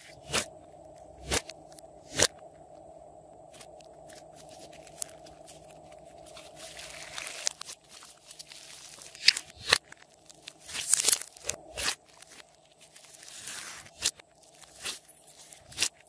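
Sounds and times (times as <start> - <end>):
slime squelching and crackling: 3.5 - 16.0.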